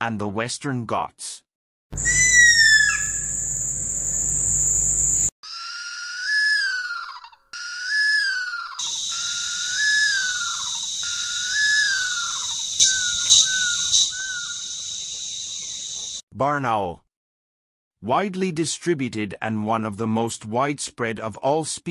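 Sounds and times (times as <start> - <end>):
steady high hiss: 2.0 - 5.3, 8.8 - 16.2
owl calling with whistled wails: 2.0 - 16.2.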